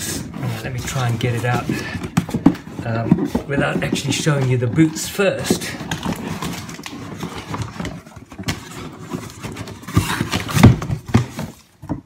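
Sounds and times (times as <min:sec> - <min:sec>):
cardboard scraping and rustling: 0:00.0 - 0:12.0
box knocks and thumps on table: 0:01.5 - 0:04.3, 0:09.8 - 0:12.0.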